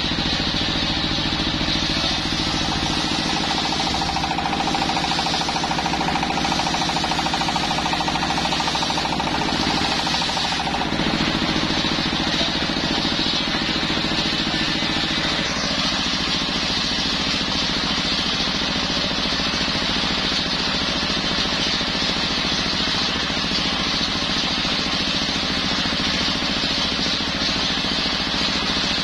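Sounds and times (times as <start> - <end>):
diesel engine chugging: 0.0 - 29.0
circular saw whining through wood: 0.1 - 17.9.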